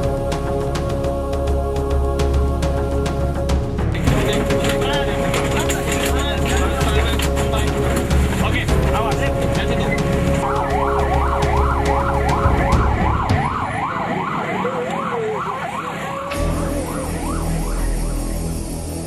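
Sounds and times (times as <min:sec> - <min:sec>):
ambulance siren yelp: 0:09.1 - 0:19.0.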